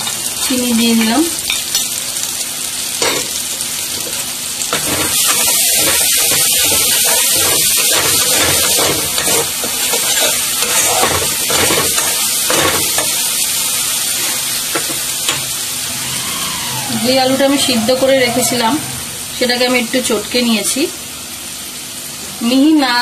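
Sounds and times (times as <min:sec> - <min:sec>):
spices sizzling in hot oil: 0:00.0 - 0:23.0
spatula scraping a metal pan: 0:04.7 - 0:13.1.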